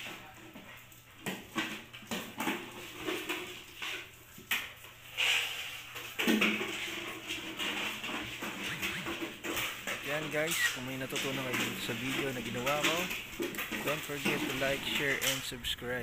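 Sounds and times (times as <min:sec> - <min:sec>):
plastic container knocking and rattling: 0:06.0 - 0:15.6
paws scampering: 0:07.7 - 0:15.5
puppies vocalising: 0:08.5 - 0:09.3, 0:10.2 - 0:12.2.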